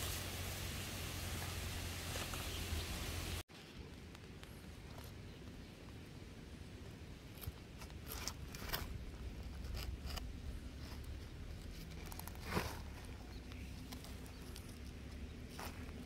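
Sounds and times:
shell scraping and crunching soil: 0:07.2 - 0:16.0.

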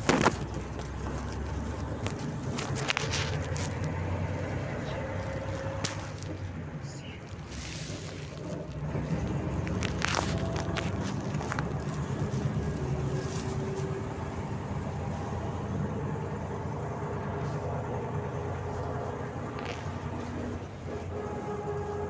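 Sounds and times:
bus engine running: 0:00.0 - 0:22.0.

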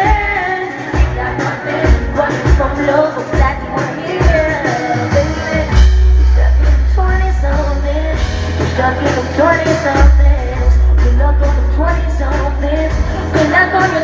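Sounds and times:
guitar: 0:00.0 - 0:14.0
woman singing: 0:00.0 - 0:14.0
deep bass notes: 0:05.2 - 0:13.3.

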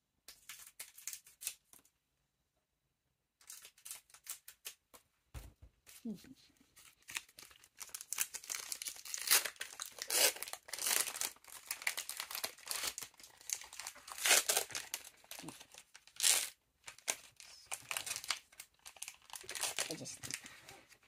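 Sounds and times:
card pack wrappers tearing: 0:00.3 - 0:01.8, 0:03.4 - 0:04.8, 0:06.8 - 0:20.4.

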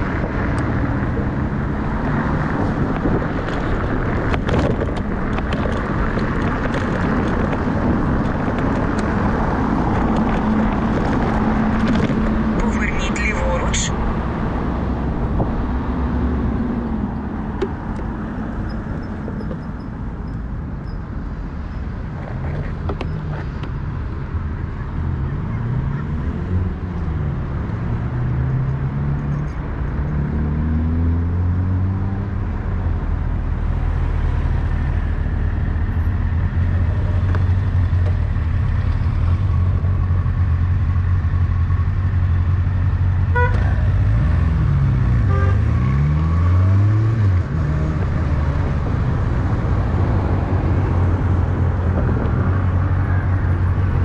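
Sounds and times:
low engine hum: 0:00.0 - 0:54.0
low traffic rumble: 0:00.0 - 0:54.0
vehicle engines speeding up: 0:23.2 - 0:41.0, 0:43.5 - 0:54.0.

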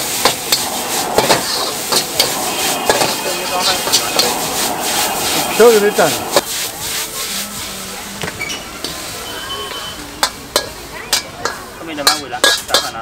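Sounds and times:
noodles sizzling in a wok: 0:00.0 - 0:13.0
metal ladle clanking on wok: 0:10.2 - 0:13.0.

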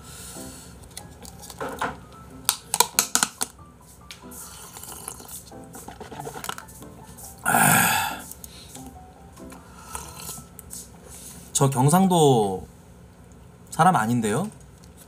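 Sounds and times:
breathy exhale: 0:00.0 - 0:00.8, 0:07.5 - 0:08.7.

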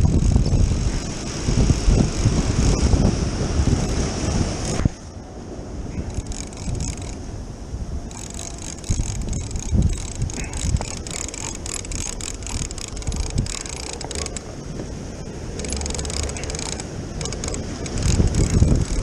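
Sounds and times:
fishing reel clicking: 0:00.0 - 0:00.7, 0:01.8 - 0:02.9, 0:04.6 - 0:04.9, 0:06.0 - 0:07.3, 0:08.1 - 0:14.6, 0:15.6 - 0:19.0
breaking surf: 0:00.0 - 0:19.0
wind on microphone: 0:00.0 - 0:19.0.

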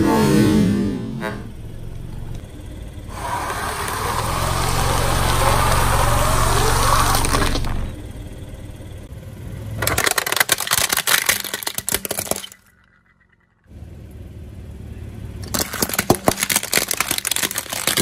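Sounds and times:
low tyre rumble: 0:00.0 - 0:10.4, 0:12.6 - 0:18.0
plastic toy cracking under tyre: 0:03.1 - 0:07.9, 0:09.8 - 0:13.4, 0:15.4 - 0:18.0.

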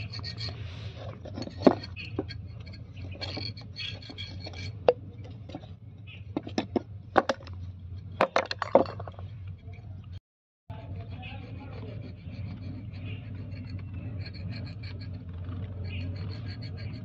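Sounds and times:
metal parts clicking and knocking: 0:00.0 - 0:10.2
steady low hum: 0:00.0 - 0:17.0.

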